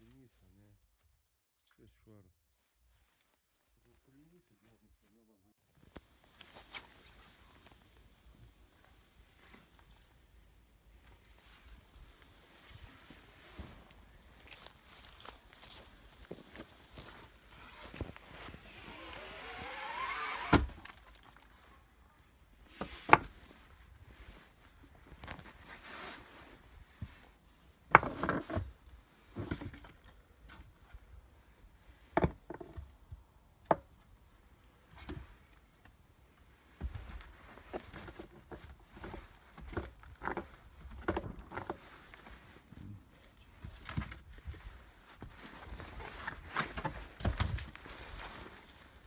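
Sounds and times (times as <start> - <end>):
rope scraping: 16.8 - 21.4
magnet knocking against concrete walls: 32.2 - 32.8.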